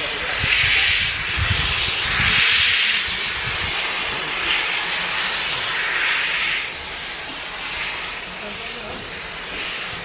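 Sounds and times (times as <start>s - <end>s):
steam locomotive hissing steam: 0.0s - 10.0s.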